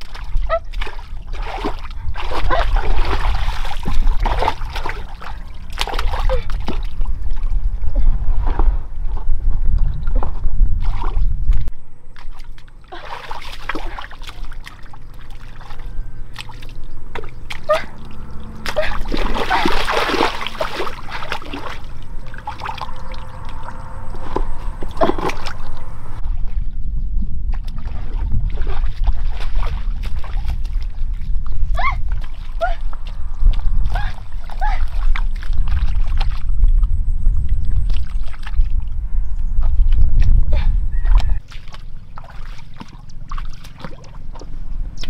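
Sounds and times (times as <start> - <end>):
water splashing and trickling: 0.0 - 26.7, 27.5 - 39.0, 39.6 - 45.0
low rumble: 0.0 - 45.0.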